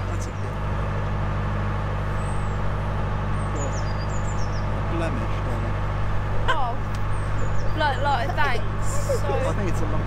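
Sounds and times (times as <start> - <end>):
diesel engine droning: 0.0 - 10.0.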